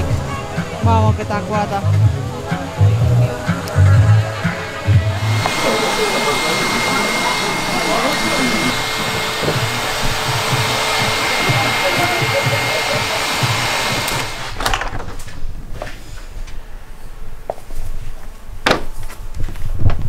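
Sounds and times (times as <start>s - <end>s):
hair dryer blowing: 0.0s - 14.6s.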